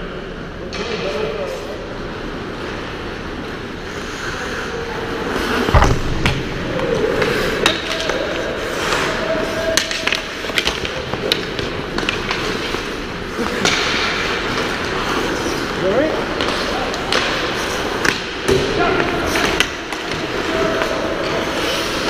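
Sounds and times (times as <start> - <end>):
sticks and pucks clacking: 5.5 - 22.0
heavy thud: 5.7 - 6.7.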